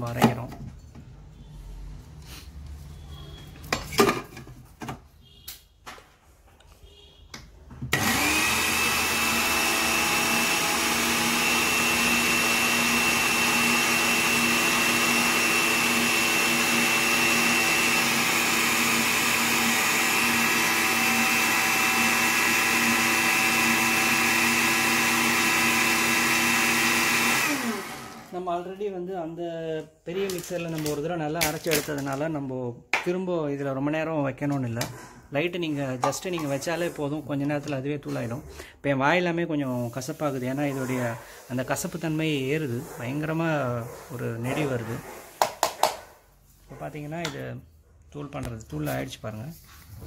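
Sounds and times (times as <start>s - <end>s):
electric spice grinder running: 7.9s - 28.4s.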